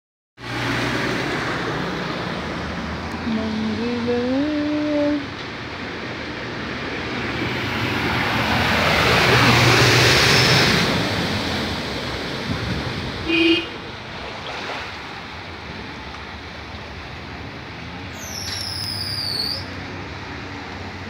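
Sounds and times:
floodwater rushing: 5.6s - 21.0s.

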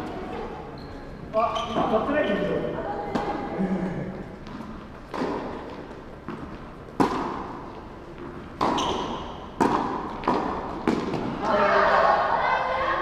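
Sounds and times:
tennis balls struck and bouncing: 3.1s - 3.4s, 4.4s - 11.5s.

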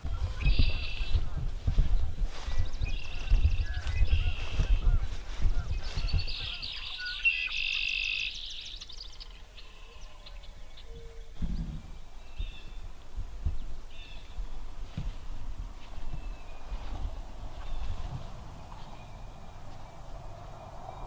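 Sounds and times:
songbird trill: 0.0s - 1.2s, 1.9s - 14.6s, 15.8s - 21.0s
bird chirps: 0.4s - 1.2s, 2.4s - 5.0s, 5.6s - 12.9s
dull low thump: 11.4s - 12.0s.

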